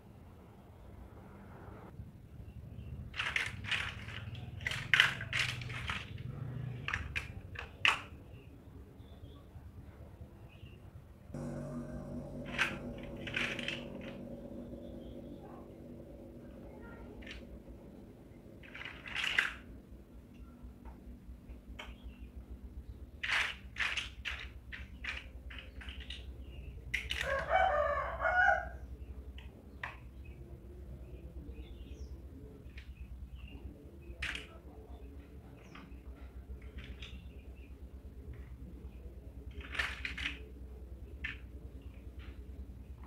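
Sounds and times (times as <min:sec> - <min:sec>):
plastic toy blocks clattering: 0:03.1 - 0:08.2, 0:18.7 - 0:19.6, 0:23.2 - 0:26.3, 0:39.5 - 0:40.4.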